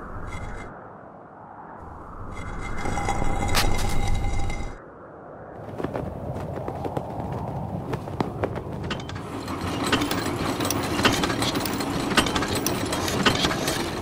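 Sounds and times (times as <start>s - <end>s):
sharp clicks and knocks: 8.2s - 14.0s
mechanical clatter: 8.7s - 14.0s.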